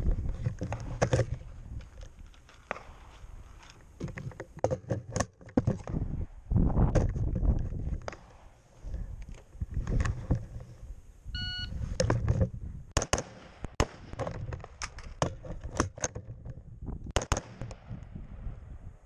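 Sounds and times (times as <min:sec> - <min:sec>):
electronic timer beep: 0:11.3 - 0:11.8
rifle shots: 0:17.2 - 0:17.9.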